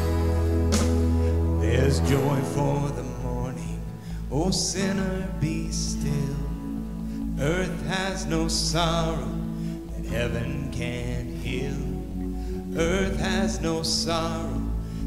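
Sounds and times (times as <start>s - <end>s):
guitar accompaniment: 0.0s - 15.0s
low bass notes: 0.0s - 15.0s
person singing: 0.0s - 15.0s.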